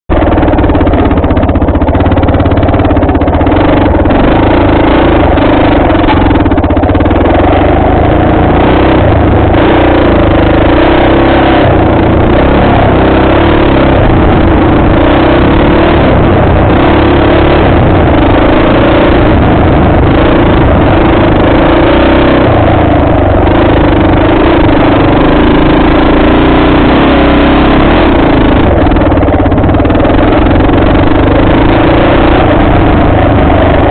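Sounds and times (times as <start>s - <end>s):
dirt bike engine running: 0.0s - 33.9s.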